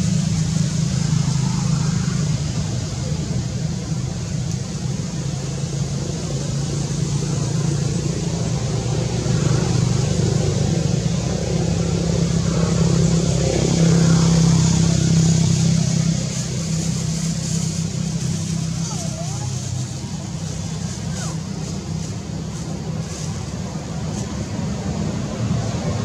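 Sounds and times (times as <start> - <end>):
engine humming: 0.0 - 26.0.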